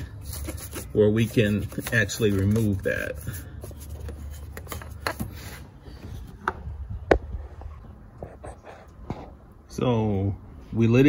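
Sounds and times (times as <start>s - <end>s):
brush scrubbing plastic and metal: 0.0s - 5.2s.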